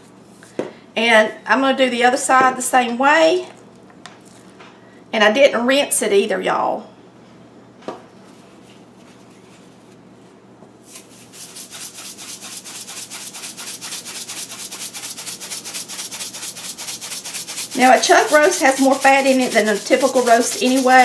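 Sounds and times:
seasoning shaker rattling: 11.0s - 21.0s.

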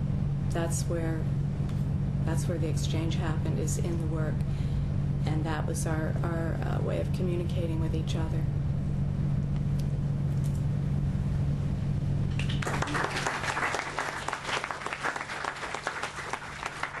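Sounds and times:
low steady hum: 0.0s - 17.0s
audience applause: 12.3s - 17.0s.

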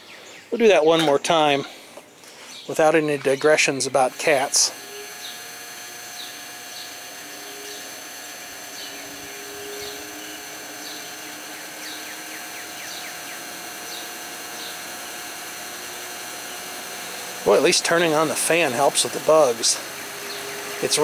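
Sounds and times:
birds chirping faintly: 0.0s - 4.2s, 4.8s - 15.0s, 19.8s - 21.0s
box fan running: 2.7s - 21.0s.

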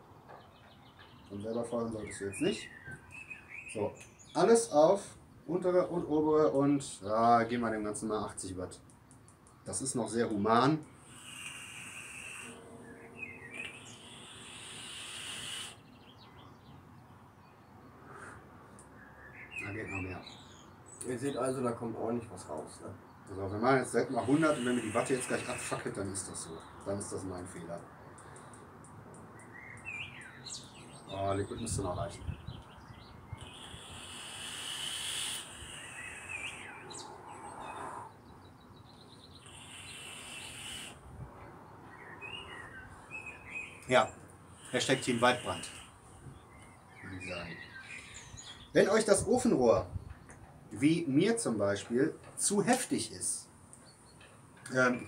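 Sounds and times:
birds chirping: 0.0s - 55.0s
hissing vape draw: 11.0s - 12.6s, 13.6s - 15.8s, 24.2s - 25.8s, 33.4s - 36.7s, 39.5s - 41.0s, 44.6s - 45.9s.

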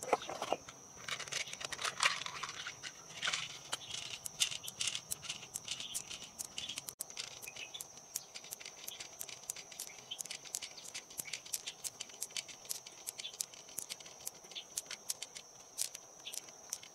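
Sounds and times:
steady high-pitched whine: 0.0s - 16.9s
pearls clicking and rattling: 1.0s - 16.9s.

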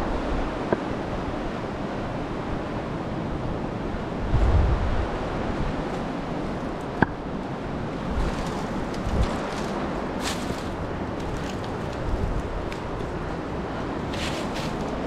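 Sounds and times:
wind rumble on microphone: 0.0s - 15.0s.

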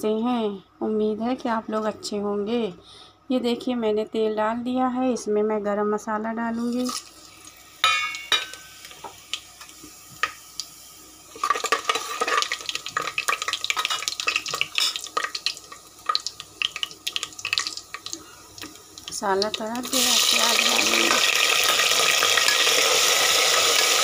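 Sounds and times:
spices sizzling in hot oil: 6.6s - 24.0s.

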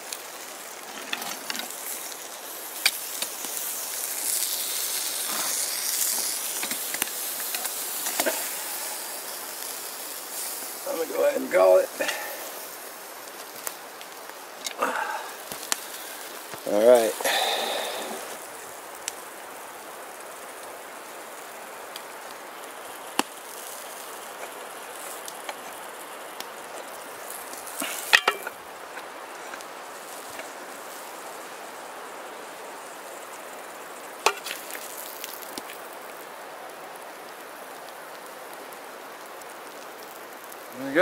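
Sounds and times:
steady background hiss: 0.0s - 41.0s
iron clinking against metal plate: 28.0s - 28.6s.

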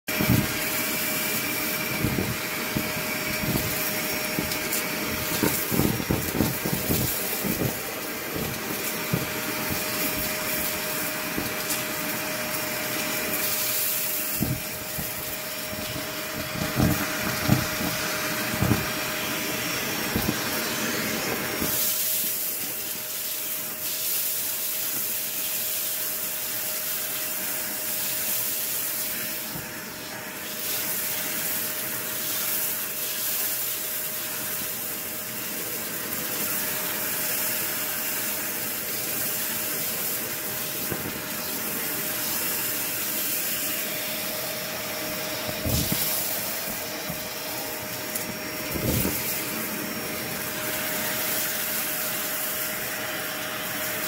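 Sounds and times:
debris crackling up vacuum wand: 0.1s - 54.0s
vacuum cleaner motor whine: 0.1s - 54.0s.

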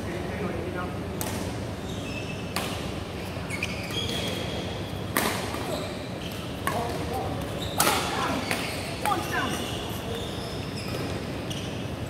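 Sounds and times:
shoes squeaking on floor: 1.8s - 2.5s, 3.2s - 4.6s, 7.4s - 12.0s
racket hitting shuttlecock: 5.1s - 5.7s.

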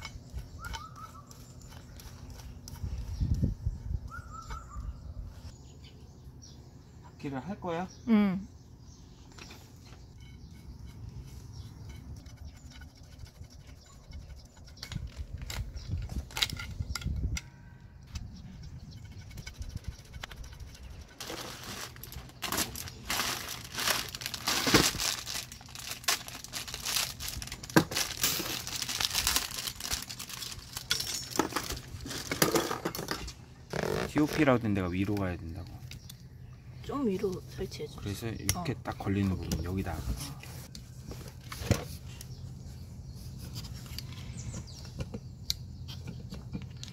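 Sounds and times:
plastic bags crinkling: 21.2s - 32.4s.

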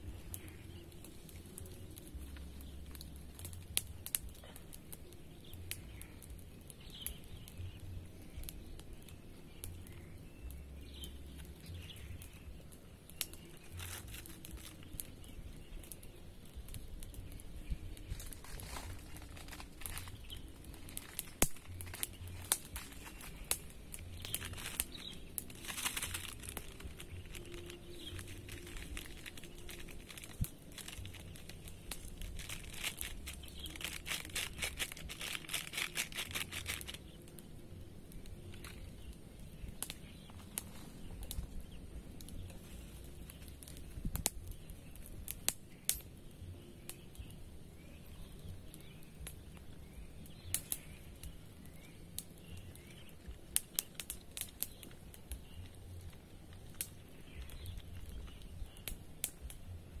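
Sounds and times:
crinkling and rustling: 13.4s - 15.2s, 17.9s - 37.4s, 39.8s - 41.6s.

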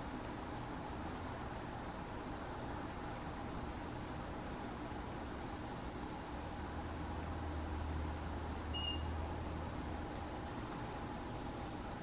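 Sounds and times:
insects trilling: 0.0s - 12.0s
faint bird chirps: 6.7s - 11.6s.

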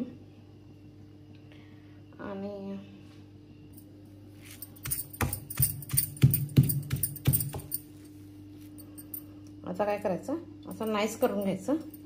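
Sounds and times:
stone pestle pounding in mortar: 4.8s - 7.8s.

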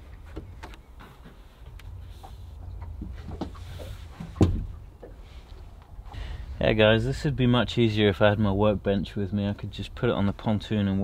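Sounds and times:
solar panel taps and knocks: 4.2s - 5.2s.

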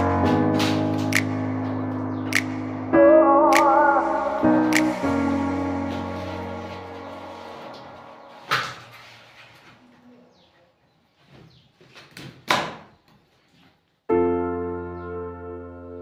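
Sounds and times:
gentle piano music: 0.0s - 9.9s, 14.1s - 16.0s.

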